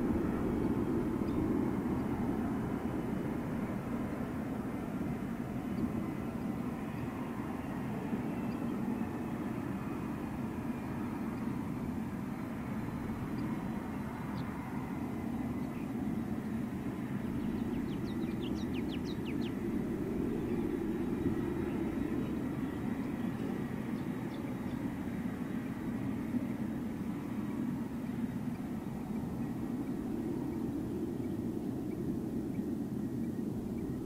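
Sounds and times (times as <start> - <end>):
jet engine rumble: 0.0 - 34.0
bird chirping: 17.4 - 19.6.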